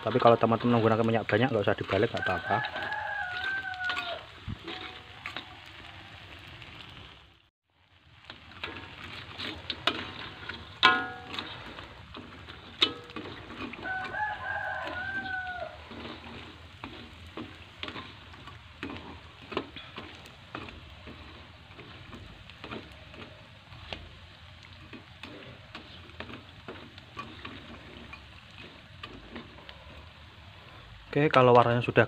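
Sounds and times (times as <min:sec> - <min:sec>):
metal spatula scraping a wok: 0:00.0 - 0:06.0, 0:08.2 - 0:31.0
crackers sizzling in oil: 0:00.0 - 0:32.0
rooster crowing: 0:02.0 - 0:04.4, 0:13.7 - 0:16.3.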